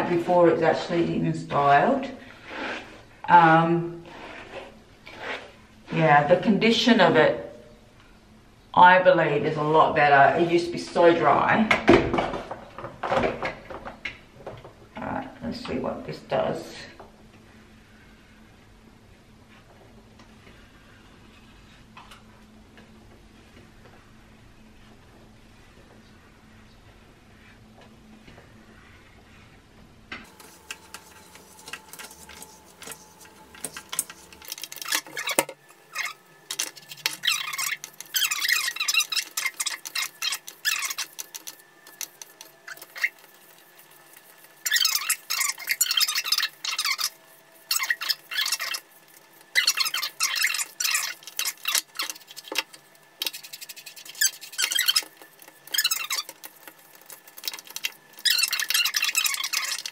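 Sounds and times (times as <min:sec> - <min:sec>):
hair rustling: 0:30.3 - 0:59.9.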